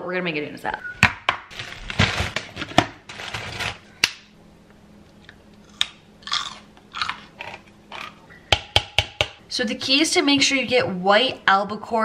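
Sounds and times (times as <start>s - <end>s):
plastic bag crinkling: 1.5s - 3.9s
containers knocking on countertop: 8.5s - 9.4s.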